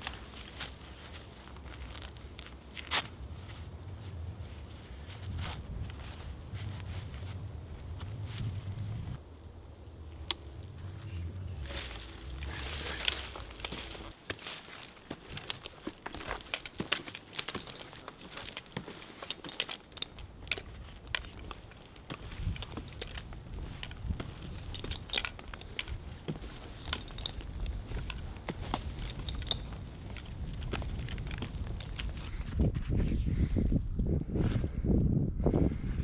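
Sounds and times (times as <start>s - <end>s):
metal climbing hardware clinking: 0.0s - 1.0s, 10.1s - 32.2s
low rumble: 3.8s - 14.1s
climbing spikes knocking into bark: 11.7s - 32.2s.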